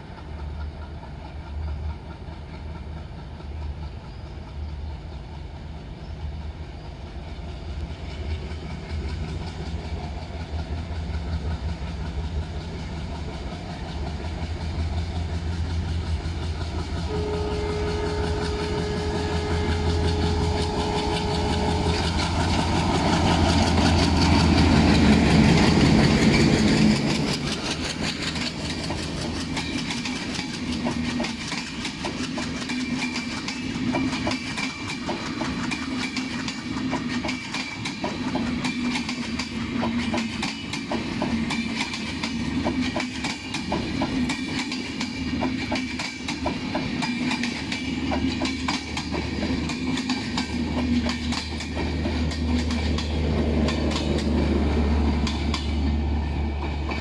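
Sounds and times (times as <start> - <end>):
diesel locomotive engine rumble: 0.0 - 57.0
train wheels clacking over rail joints: 0.0 - 57.0
train horn: 17.0 - 22.6.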